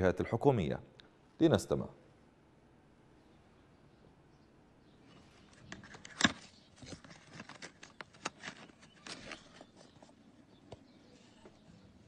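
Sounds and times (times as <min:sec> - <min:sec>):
cardboard clicks scrapes and rustles: 0:05.2 - 0:10.2.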